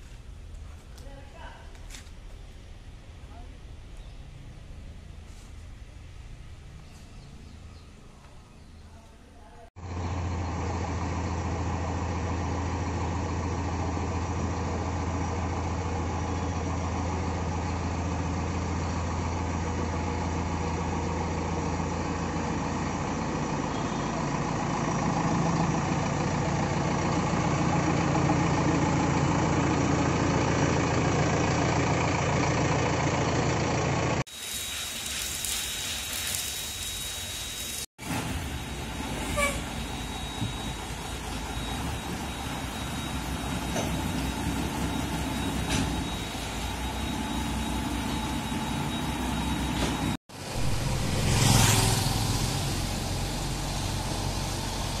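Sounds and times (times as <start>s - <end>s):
diesel engine idling: 9.8s - 34.3s, 37.8s - 55.0s
engine with thin high whine: 9.8s - 55.0s.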